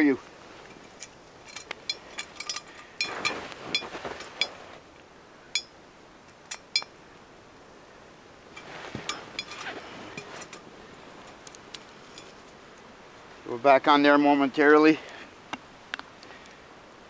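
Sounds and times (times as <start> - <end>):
rustling: 0.0 - 6.9, 8.5 - 13.4.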